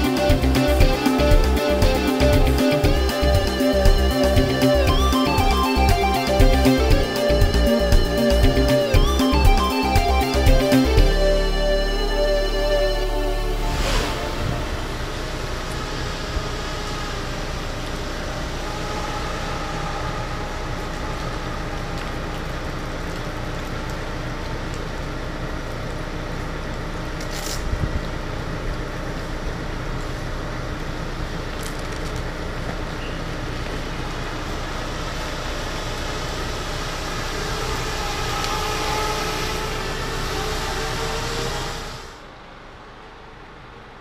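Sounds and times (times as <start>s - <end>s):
drone motors and propellers whining: 0.0s - 25.4s, 32.2s - 42.4s.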